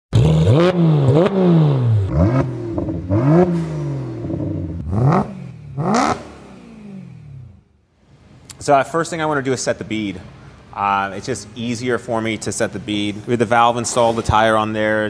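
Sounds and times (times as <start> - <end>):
car engine revving: 0.1 - 7.8.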